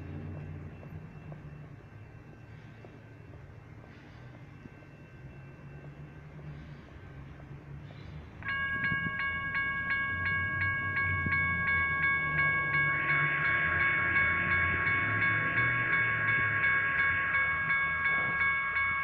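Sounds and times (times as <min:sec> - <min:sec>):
railroad crossing bell ringing: 0:00.0 - 0:19.0.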